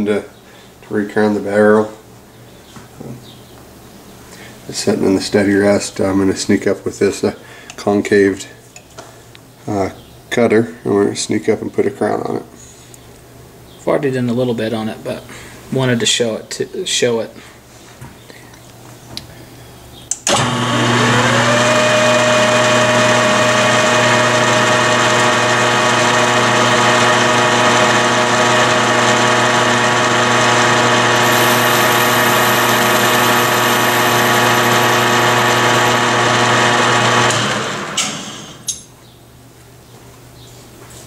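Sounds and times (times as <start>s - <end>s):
metal lathe running: 20.3s - 38.5s.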